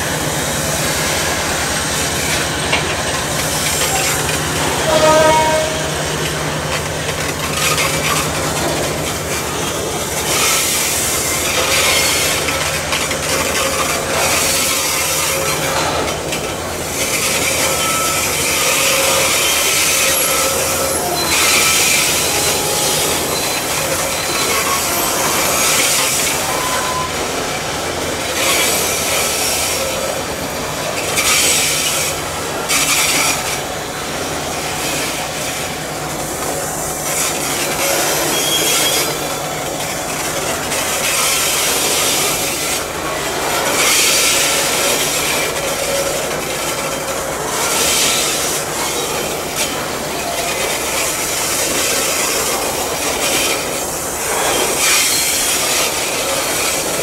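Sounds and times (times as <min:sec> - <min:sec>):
diesel locomotive drone: 0:00.0 - 0:57.0
train wheels squealing: 0:16.9 - 0:27.6, 0:28.3 - 0:42.8, 0:43.5 - 0:57.0.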